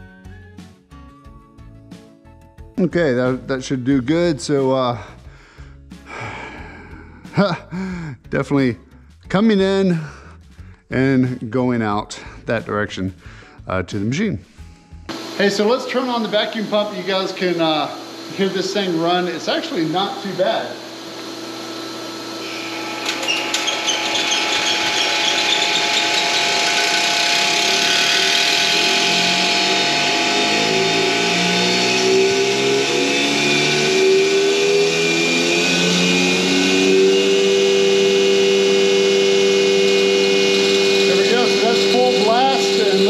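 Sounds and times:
vacuum pump motor hum: 15.1s - 43.0s.

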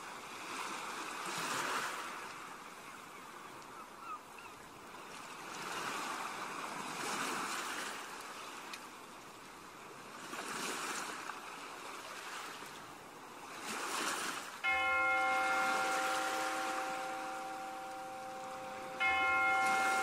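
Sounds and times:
sea waves washing onto shore: 5.0s - 20.0s.

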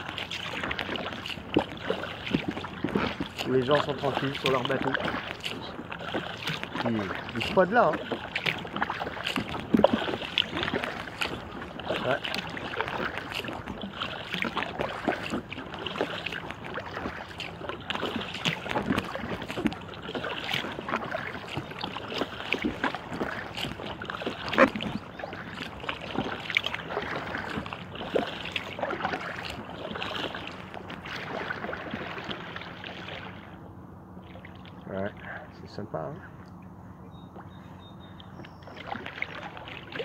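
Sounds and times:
water splashing around kayak: 0.0s - 40.0s.

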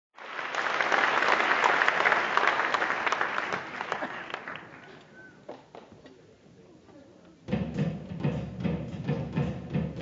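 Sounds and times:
audience applauding: 0.2s - 5.6s.

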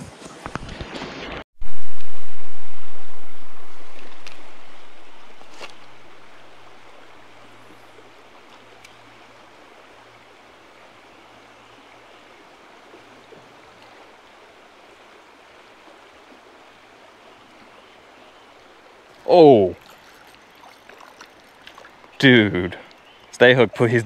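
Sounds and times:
faint clicks: 8.5s - 9.0s.

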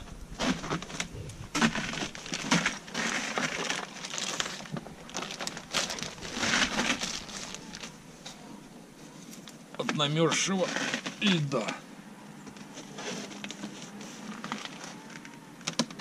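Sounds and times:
footsteps crunching on icy snow: 0.0s - 8.0s.

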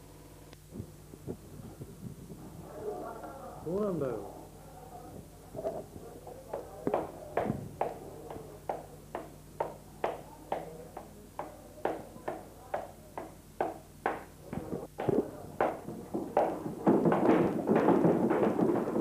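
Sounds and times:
faint low hum: 0.0s - 19.0s
hard-soled footsteps walking: 5.5s - 19.0s.

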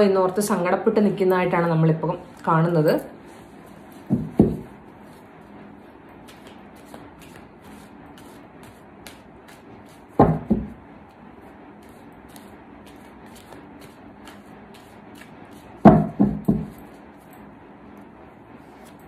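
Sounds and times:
dull thumps: 4.1s - 4.7s
cards being shuffled: 6.2s - 10.2s, 11.8s - 15.8s.

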